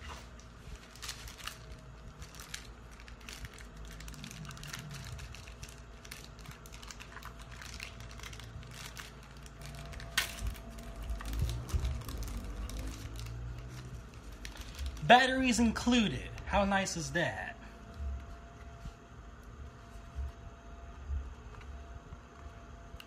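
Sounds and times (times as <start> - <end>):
plastic bag crinkling: 0.0 - 17.0
faint steady hum: 0.0 - 23.0.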